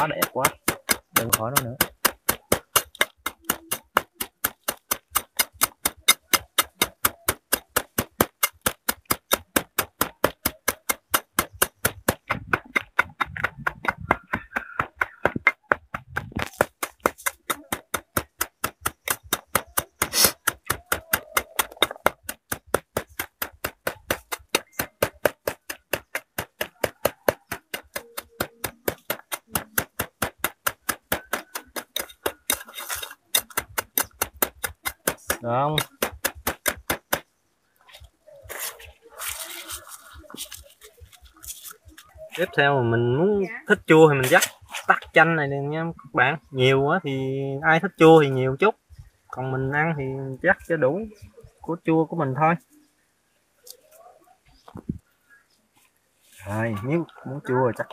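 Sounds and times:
wooden pestle pounding in bowl: 0.0 - 37.3.

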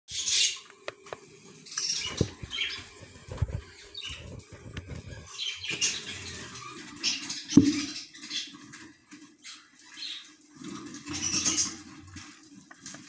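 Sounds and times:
rustling and scrabbling: 2.0 - 9.2.

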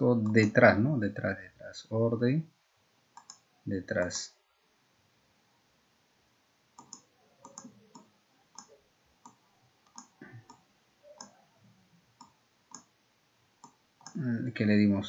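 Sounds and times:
computer mouse buttons clicking: 3.2 - 3.4, 6.8 - 11.4, 12.2 - 12.9, 13.6 - 14.2.

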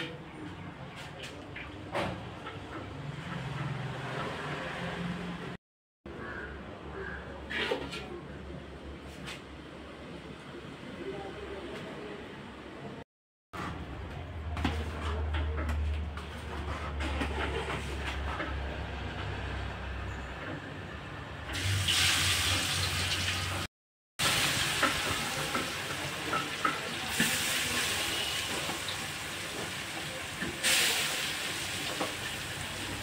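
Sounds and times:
food sizzling in hot oil: 21.5 - 33.0.

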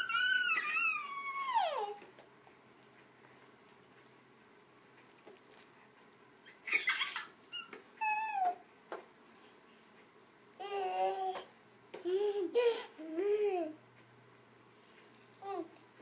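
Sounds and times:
baby squealing happily: 0.0 - 2.0, 6.5 - 8.6.

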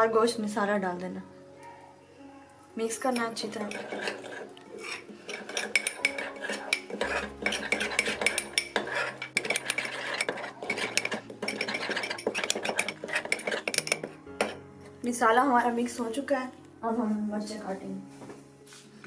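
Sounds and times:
metal spoon scraping a bowl: 2.9 - 14.6.

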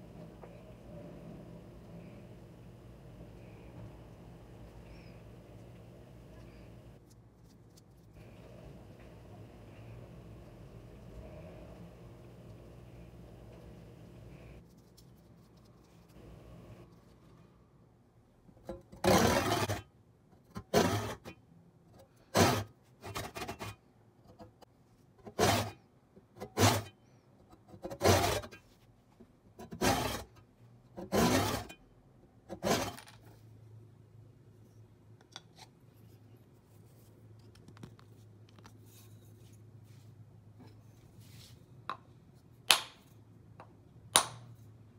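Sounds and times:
hand saw cutting wood: 19.0 - 19.8, 20.6 - 21.2, 22.3 - 23.8, 25.3 - 25.8, 26.4 - 26.9, 27.8 - 28.6, 29.6 - 30.3, 31.0 - 31.7, 32.5 - 33.0.

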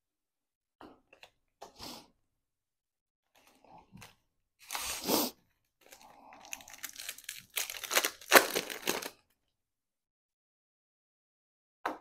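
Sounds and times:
foil wrapper crinkling: 5.8 - 9.2.

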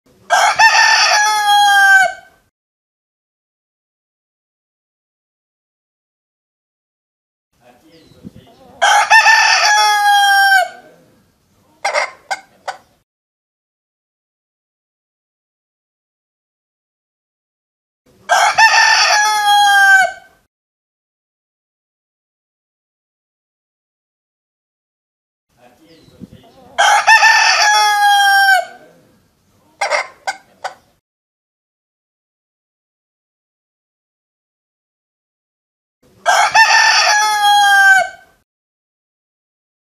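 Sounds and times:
rooster clucks: 0.3 - 2.3, 8.5 - 10.9, 11.8 - 13.0, 18.3 - 20.3, 26.4 - 28.9, 29.8 - 31.0, 36.2 - 38.3
rooster crowing: 0.3 - 2.4, 8.8 - 10.9, 18.3 - 20.4, 26.8 - 28.8, 36.2 - 38.4.

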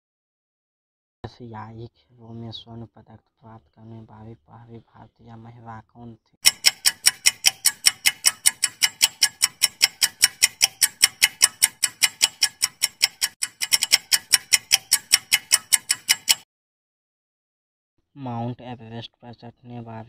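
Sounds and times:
clock ticking fast: 6.4 - 16.4.

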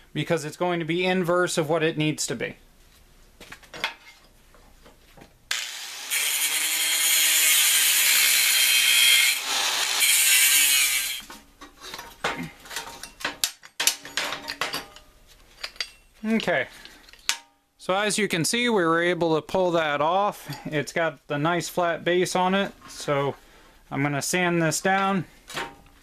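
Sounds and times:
angle grinder cutting steel: 5.5 - 11.3
metal parts clanking: 11.6 - 17.5.

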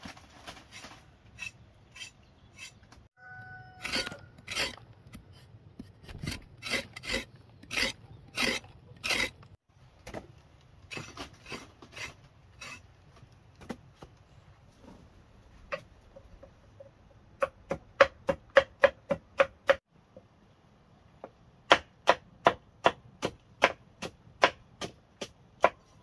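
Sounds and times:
rasping strokes: 0.6 - 2.9, 3.7 - 9.6, 10.8 - 12.9.

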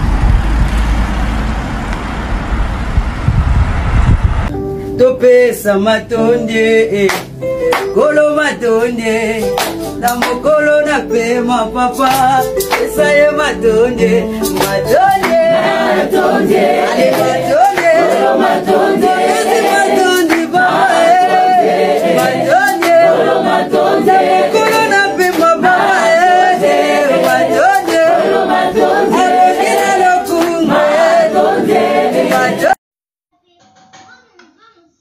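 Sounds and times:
voices singing in harmony: 5.2 - 32.8.

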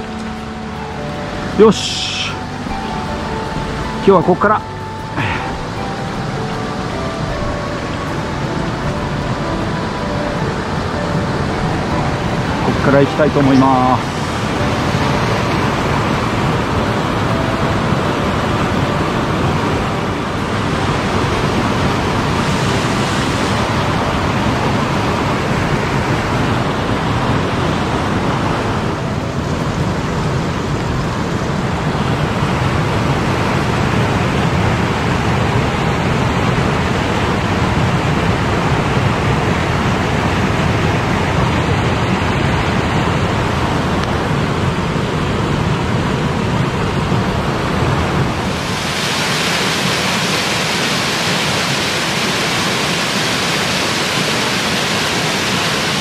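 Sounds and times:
stream water rushing: 0.0 - 56.0.

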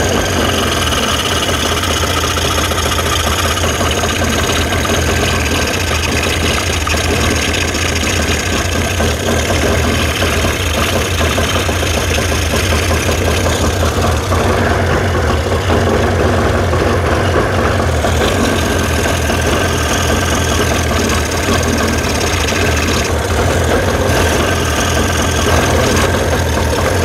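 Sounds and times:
outboard motor running: 0.0 - 27.0.

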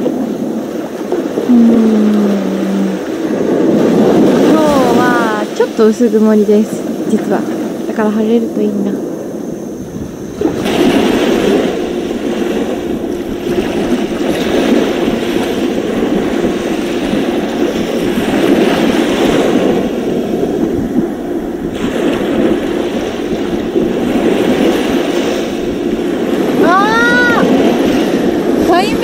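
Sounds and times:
surf washing onto beach: 0.0 - 29.0.

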